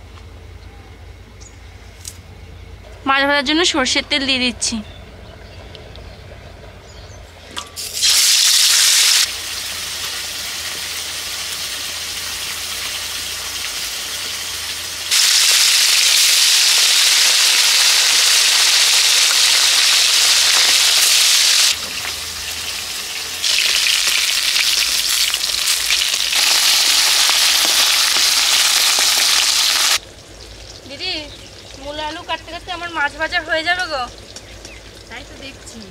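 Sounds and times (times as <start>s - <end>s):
fish sizzling in oil: 7.8s - 35.9s.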